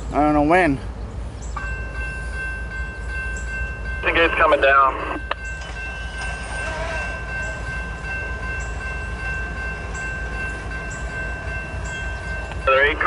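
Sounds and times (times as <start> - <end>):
crossing warning bell ringing: 0.0 - 13.0
diesel locomotive rumble: 0.0 - 13.0.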